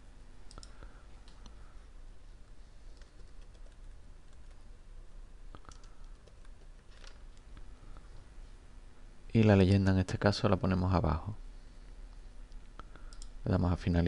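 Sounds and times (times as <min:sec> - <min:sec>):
keyboard typing: 0:02.9 - 0:04.6, 0:05.5 - 0:07.4.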